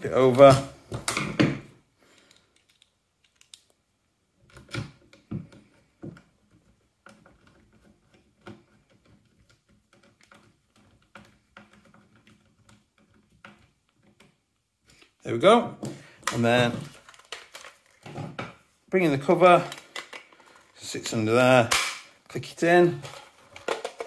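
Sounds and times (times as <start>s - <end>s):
rifle parts clicking and knocking: 2.2s - 3.8s, 19.6s - 20.8s, 23.0s - 24.0s.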